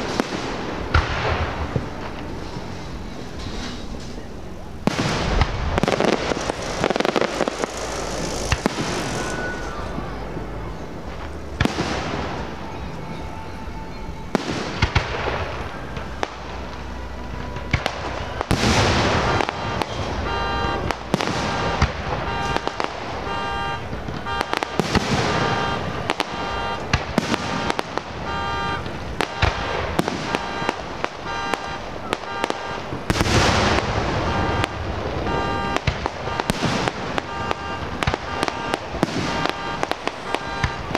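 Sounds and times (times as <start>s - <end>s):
firework crackle: 0.0s - 40.9s
firework shells bursting: 4.8s - 9.9s, 14.3s - 40.9s
music playing: 6.0s - 40.9s.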